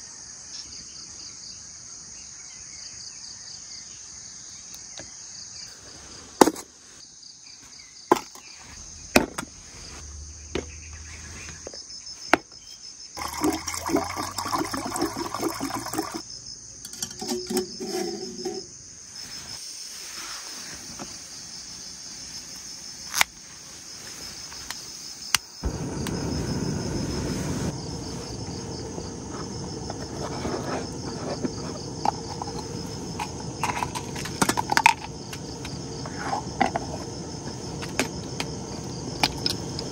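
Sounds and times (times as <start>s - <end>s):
pulsing insect chorus: 0.0s - 39.9s
low rushing noise: 8.6s - 11.8s, 25.6s - 39.9s
clattering and rustling: 16.8s - 18.8s.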